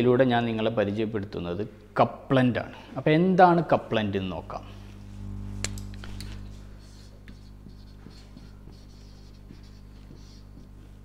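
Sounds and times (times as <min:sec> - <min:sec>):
steady low hum: 0:00.0 - 0:11.0
marker pen writing on whiteboard: 0:06.6 - 0:11.0.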